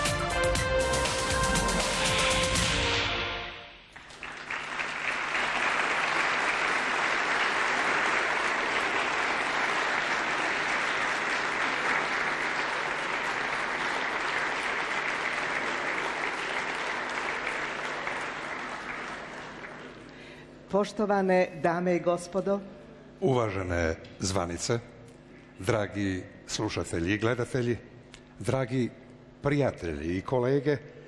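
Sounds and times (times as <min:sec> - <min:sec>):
audience applauding: 0:03.9 - 0:20.2.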